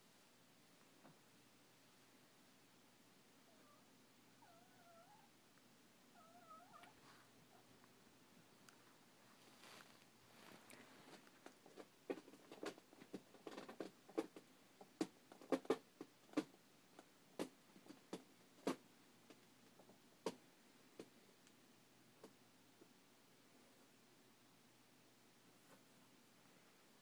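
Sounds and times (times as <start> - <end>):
soft irregular clicks and taps: 0.7 - 1.4, 7.8 - 9.0, 9.6 - 23.0.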